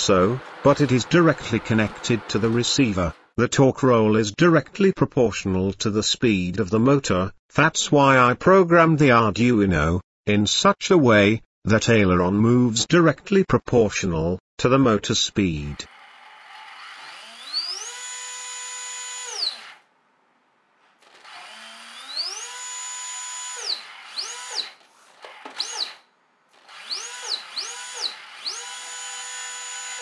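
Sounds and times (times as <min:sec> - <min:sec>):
electric motor whining: 0:00.0 - 0:03.3, 0:15.9 - 0:19.8, 0:21.1 - 0:26.0, 0:26.6 - 0:30.0.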